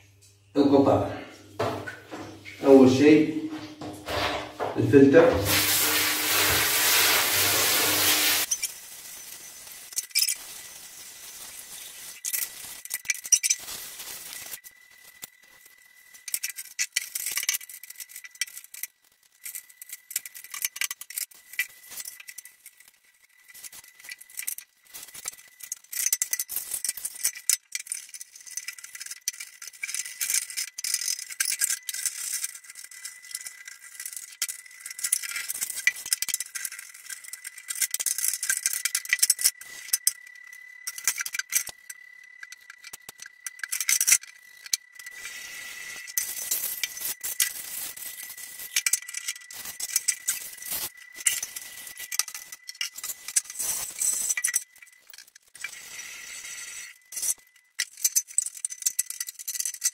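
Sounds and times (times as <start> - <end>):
hiss: 5.4 - 12.7, 45.1 - 46.7
plastic parts clattering: 7.6 - 45.4, 46.0 - 59.9.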